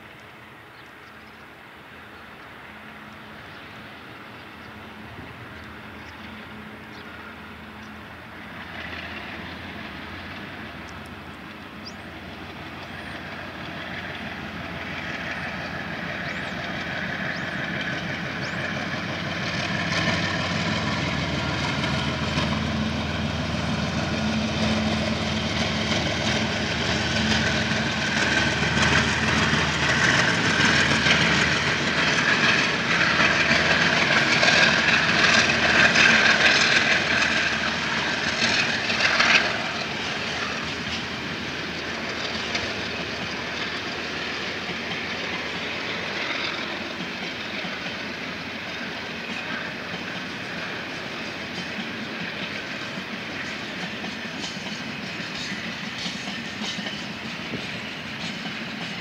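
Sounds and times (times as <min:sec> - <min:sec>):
diesel locomotive engines: 0:00.0 - 0:59.0.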